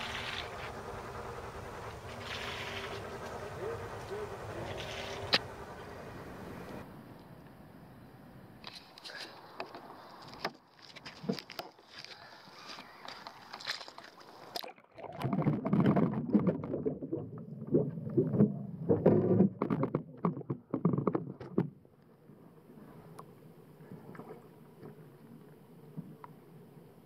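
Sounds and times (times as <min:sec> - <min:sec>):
muffled underwater hiss: 0:00.0 - 0:06.8
faint steady hum: 0:00.0 - 0:11.2, 0:21.8 - 0:27.0.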